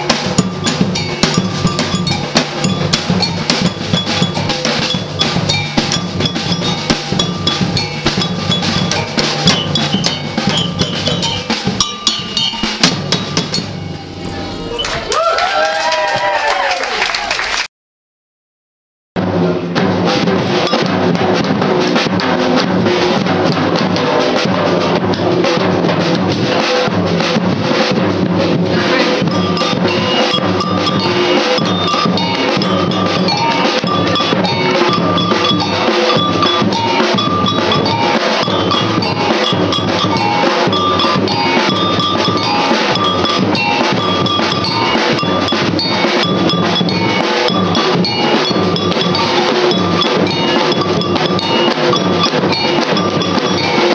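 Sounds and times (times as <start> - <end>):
high metallic bell pattern: 0.0 - 15.0, 20.6 - 21.3, 28.9 - 53.9
samba drums playing: 0.0 - 15.1, 19.2 - 53.9.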